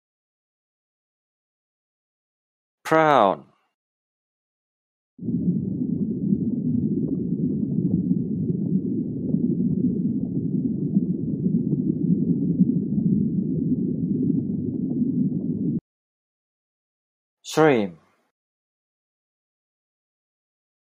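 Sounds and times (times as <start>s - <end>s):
underwater rumbling water noise: 5.2s - 15.8s.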